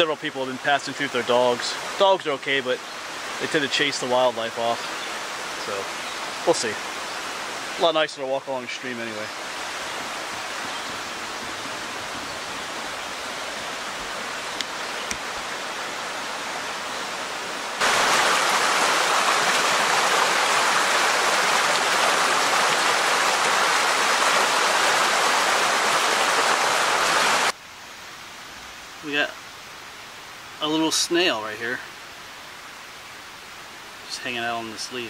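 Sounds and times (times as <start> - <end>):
creek rushing over stones: 0.0 - 27.6.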